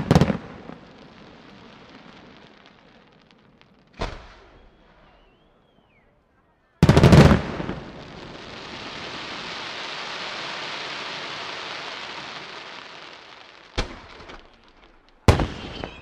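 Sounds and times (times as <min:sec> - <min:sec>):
firework stars crackling: 0:00.0 - 0:05.4, 0:06.8 - 0:16.0.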